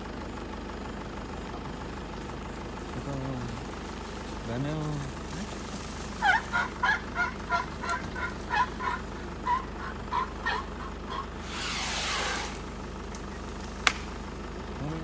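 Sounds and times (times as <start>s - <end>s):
bird calling rapid notes: 6.2s - 12.6s.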